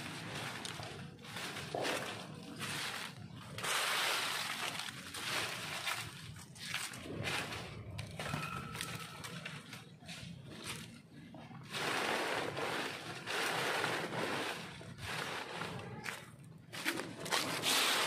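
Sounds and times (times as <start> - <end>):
dry leaves crunching: 0.0 - 18.0.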